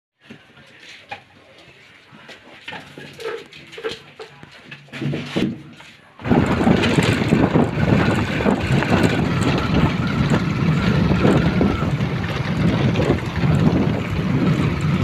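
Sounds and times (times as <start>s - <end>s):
vehicle running on dirt track: 6.2s - 15.0s
wind buffeting microphone: 6.2s - 15.0s.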